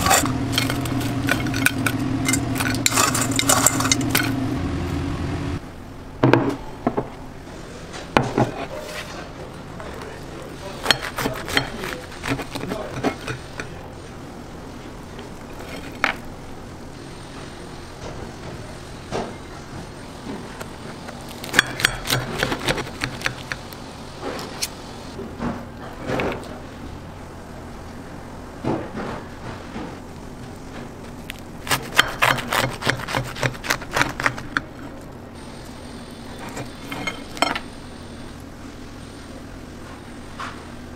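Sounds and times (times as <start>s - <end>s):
knife and fork cutting food: 0.0s - 4.4s, 10.7s - 13.8s, 21.4s - 23.6s, 31.7s - 34.7s.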